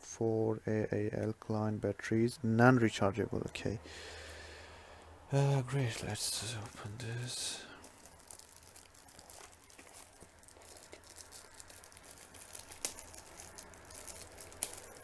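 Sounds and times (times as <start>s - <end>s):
plastic bag crinkling: 5.6s - 15.0s.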